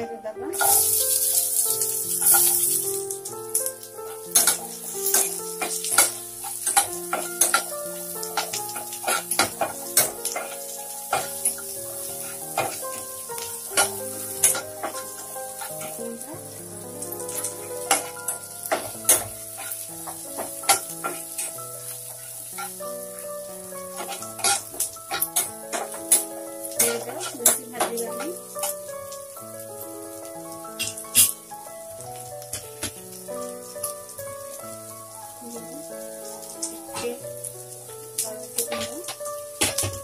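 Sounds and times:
onions sizzling in oil: 0.0 - 40.0
spatula scraping and tapping pan: 0.6 - 2.9, 3.5 - 16.3, 17.1 - 28.8, 38.6 - 40.0.

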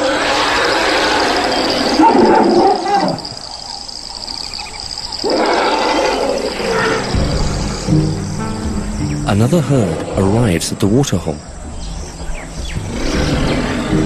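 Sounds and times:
high insect drone: 0.0 - 14.0
elephants calling: 4.6 - 10.3.

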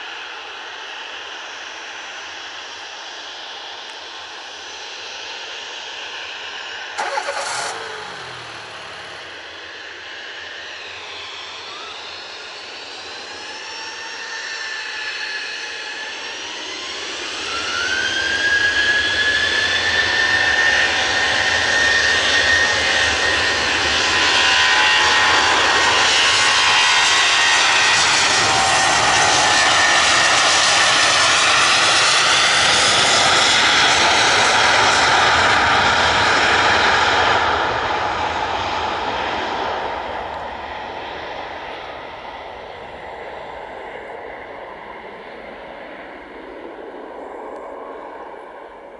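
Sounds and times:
jet engines spooling up: 3.8 - 48.9.

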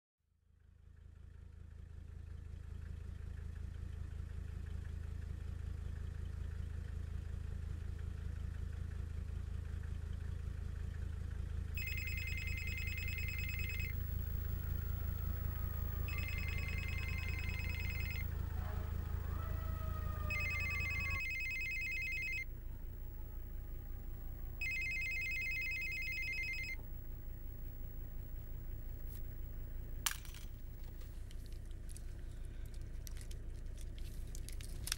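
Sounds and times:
electronic telephone ringing: 11.8 - 22.5, 23.4 - 30.1
car driving rumble from inside: 13.8 - 25.0, 25.8 - 34.9.

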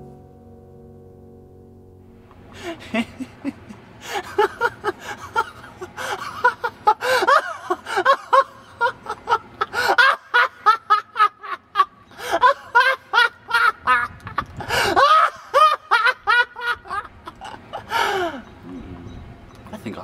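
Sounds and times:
person giggling: 2.6 - 18.8.

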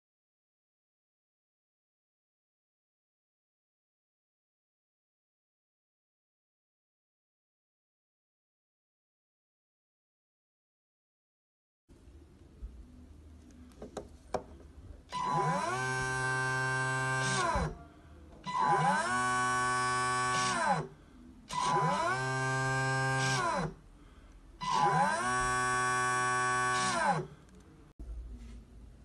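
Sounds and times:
electric propeller motors running: 18.5 - 20.9, 21.5 - 23.8, 24.6 - 27.3.

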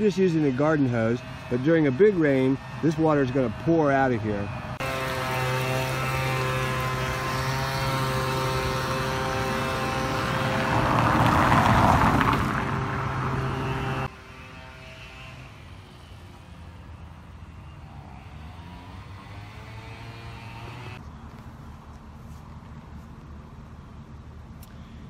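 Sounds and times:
outdoor background noise: 0.0 - 25.0
machine drone with held tones: 12.7 - 21.0.

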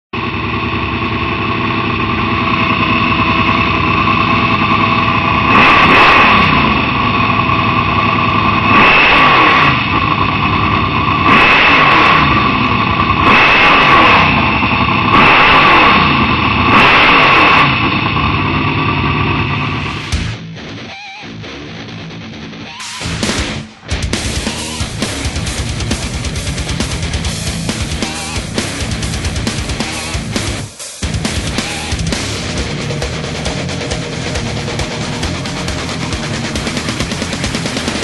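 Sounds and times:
buggy engine revving: 0.2 - 38.0.

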